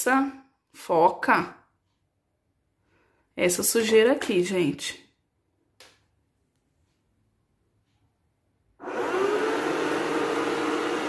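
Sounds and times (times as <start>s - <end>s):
robot vacuum motor whine: 8.8s - 11.0s.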